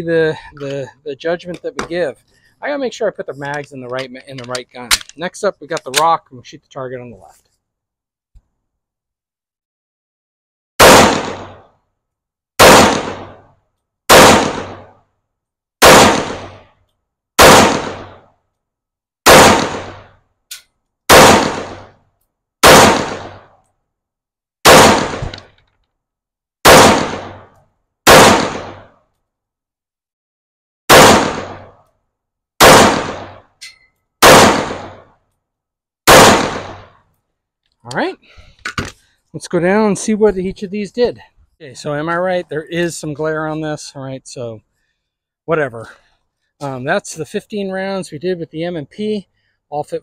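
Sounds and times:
pistol shots with echo: 10.8 - 11.6, 12.6 - 13.4, 14.1 - 14.9, 15.8 - 16.6, 17.4 - 18.2, 19.3 - 20.1, 21.1 - 21.9, 22.6 - 23.5, 24.7 - 25.4, 26.6 - 27.4, 28.1 - 28.9, 30.9 - 31.7, 32.6 - 33.4, 34.2 - 35.0, 36.1 - 36.9.

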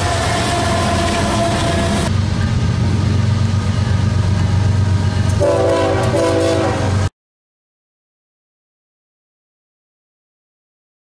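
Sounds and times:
diesel locomotive engine rumble: 0.0 - 7.1
train air horn blasts: 5.4 - 7.1.

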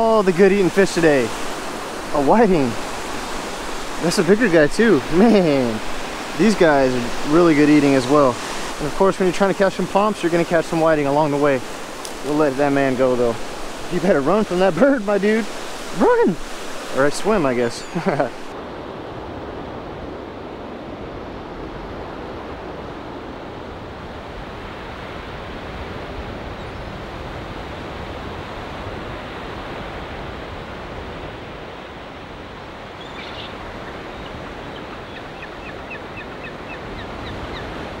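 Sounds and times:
surf breaking on beach: 0.0 - 26.4
short high bird calls: 33.0 - 37.7.

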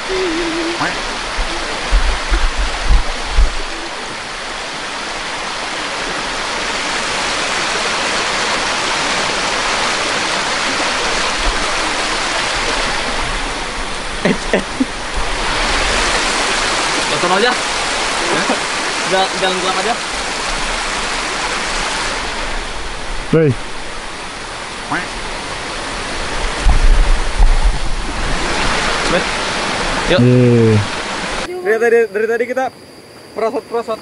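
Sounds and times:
low thumps: 0.0 - 3.9, 26.5 - 28.4
stream rushing over rocks: 0.0 - 31.5.

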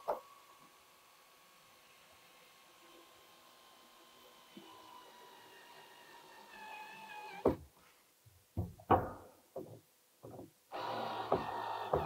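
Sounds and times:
metal clamp knocks and clunks: 8.6 - 10.6.

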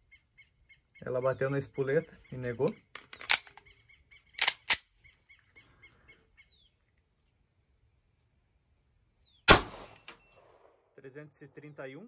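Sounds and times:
bird chirping rapidly: 0.0 - 6.8
pistol shot: 9.5 - 10.8.

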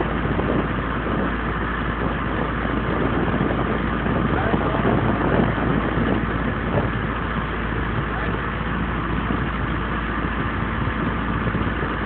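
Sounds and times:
boat engine running: 0.0 - 12.0
noisy rush: 0.0 - 12.0.

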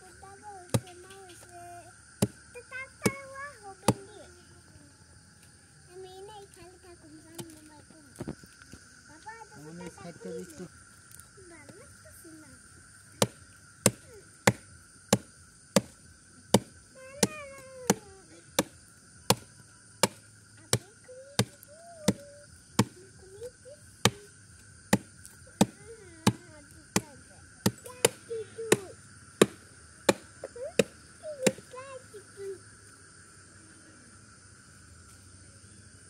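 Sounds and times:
blade chopping wood: 0.7 - 1.2, 7.4 - 7.6, 13.2 - 18.0, 18.6 - 20.8, 21.4 - 22.2, 22.8 - 23.0, 24.0 - 24.2, 24.9 - 26.4, 27.0 - 28.8, 29.4 - 31.7.

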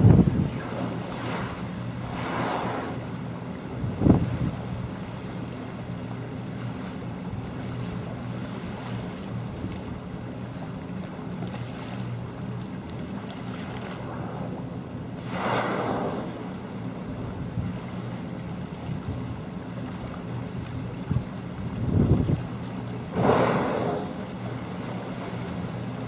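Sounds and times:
rush of noise: 0.0 - 4.2, 13.9 - 16.6, 23.1 - 24.3
wind buffeting microphone: 0.0 - 4.9, 21.0 - 22.6
boat engine humming: 0.0 - 26.0
choppy sea wash: 0.0 - 26.0.

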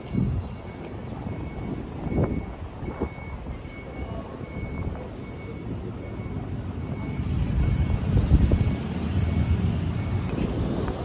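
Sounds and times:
faint high beep: 0.0 - 8.0
city traffic rumble: 0.0 - 11.0.

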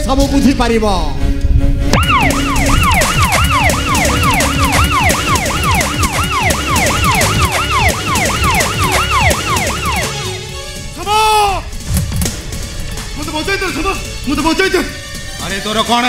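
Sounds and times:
electronic yelp siren: 2.0 - 10.5.

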